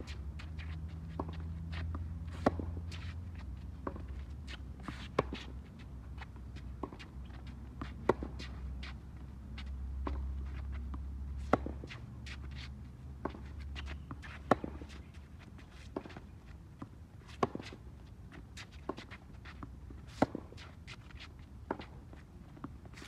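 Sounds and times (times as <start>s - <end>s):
light footsteps on court: 0.0s - 23.0s
racket striking tennis ball: 1.2s - 3.1s, 11.4s - 12.0s, 13.2s - 14.9s, 17.2s - 17.8s, 18.8s - 22.0s.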